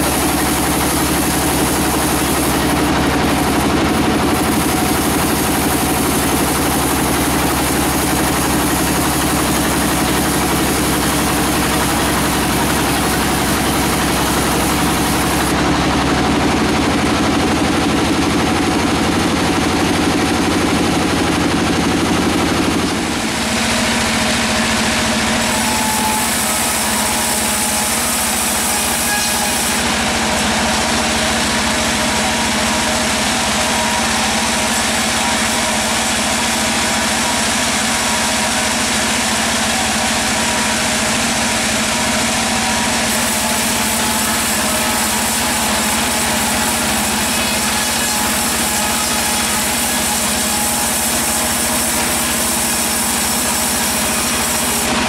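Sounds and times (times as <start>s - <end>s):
sawmill machinery droning: 0.0s - 55.0s.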